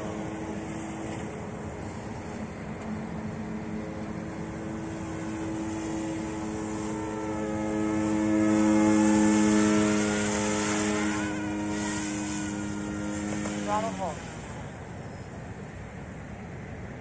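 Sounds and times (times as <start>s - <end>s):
rotor buzz: 3.7s - 14.9s.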